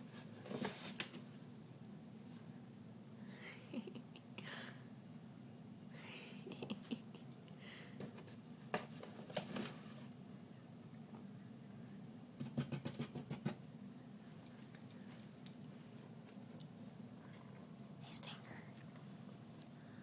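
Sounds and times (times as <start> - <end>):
low steady hum: 13.6 - 20.0.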